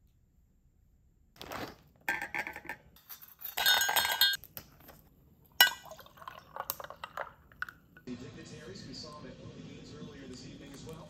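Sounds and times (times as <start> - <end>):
plastic bag crinkling: 1.4 - 2.0
juice pouring into metal mug: 5.6 - 8.1.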